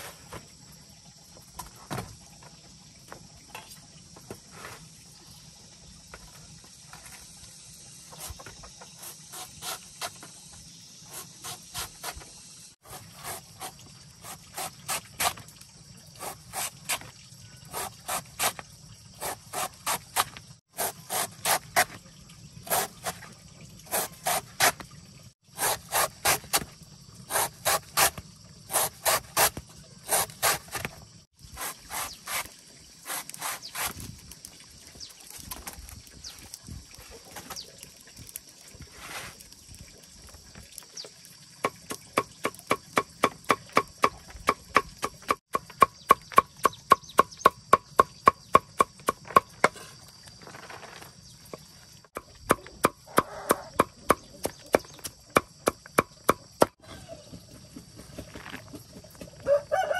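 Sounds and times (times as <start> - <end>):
cleaver chopping on wooden block: 41.6 - 49.8, 52.2 - 56.8.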